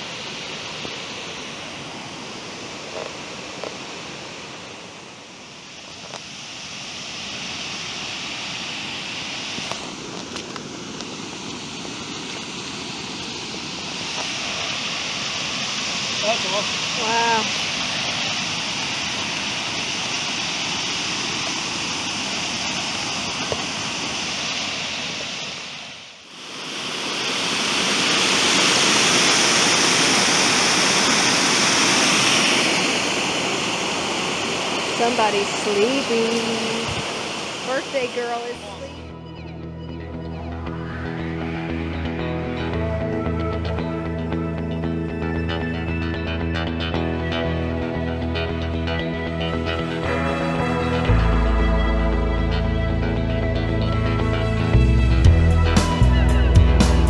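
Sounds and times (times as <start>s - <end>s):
river rapids rushing: 0.0s - 39.0s.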